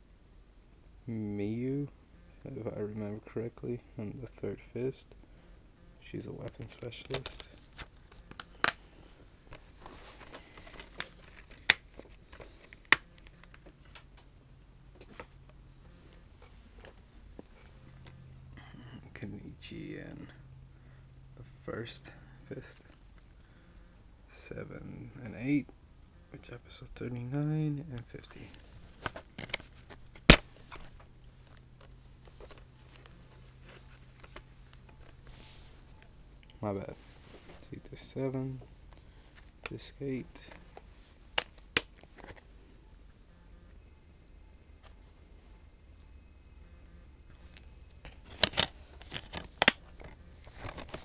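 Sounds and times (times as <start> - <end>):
faint low hum: 0.0 - 51.0
rustles of handling: 6.4 - 14.3, 28.0 - 41.3, 47.3 - 51.0
plastic dvd case clicking: 48.3 - 51.0.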